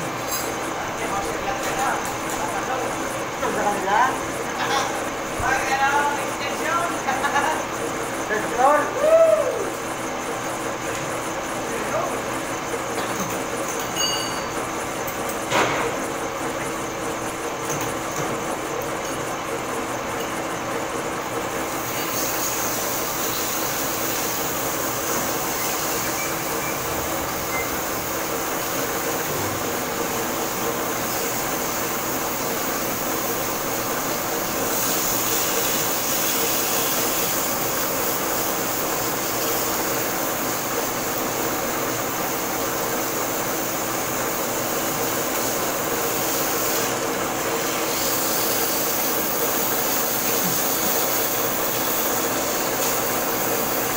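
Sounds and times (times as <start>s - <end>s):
metal lathe humming: 18.6s - 53.9s
hiss: 21.7s - 26.8s, 30.4s - 47.0s, 47.6s - 53.9s.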